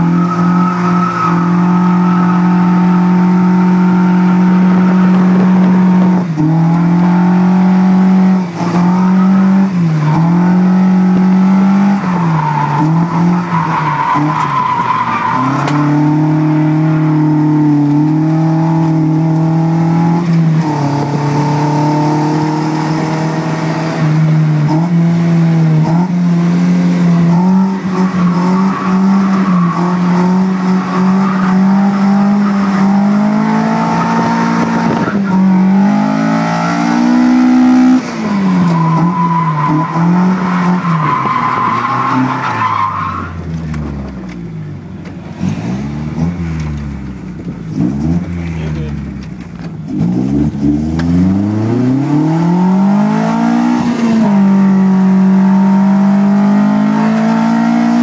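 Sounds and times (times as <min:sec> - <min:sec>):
tyre squeal: 0:00.0 - 0:05.4, 0:12.0 - 0:17.6, 0:27.3 - 0:33.2, 0:38.2 - 0:43.6
car engine revving: 0:00.0 - 0:58.0.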